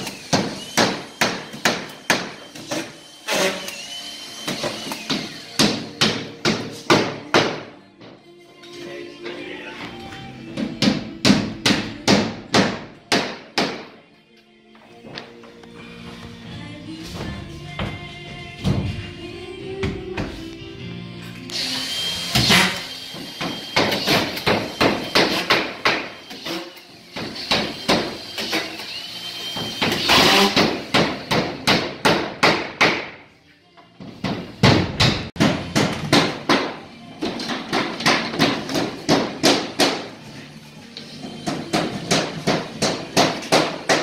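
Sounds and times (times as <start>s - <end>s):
hammer driving nails: 0.0s - 3.8s, 4.4s - 7.7s, 22.3s - 28.9s, 29.6s - 33.2s, 34.1s - 40.1s, 41.4s - 44.0s.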